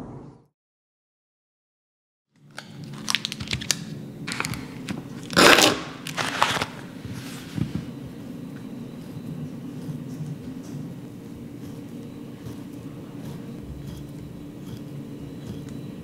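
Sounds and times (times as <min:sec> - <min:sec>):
plastic ripping: 0:02.4 - 0:06.9
plastic packaging crinkling: 0:02.4 - 0:07.4
low steady hum: 0:02.4 - 0:16.0.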